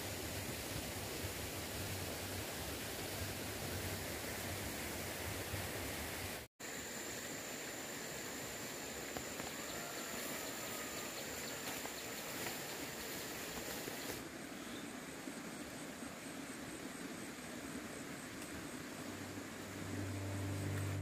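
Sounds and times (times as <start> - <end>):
outdoor background hiss: 0.0 - 21.0
thin high whine: 19.0 - 21.0.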